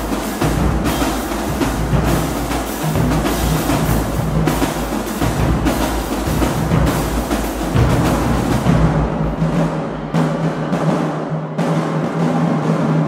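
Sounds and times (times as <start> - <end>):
bass drums: 0.0 - 10.3
tenor drums playing: 0.0 - 13.0.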